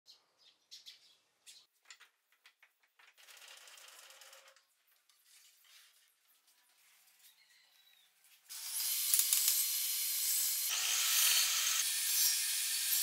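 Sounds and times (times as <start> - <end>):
sparrows chirping: 0.1 - 1.7.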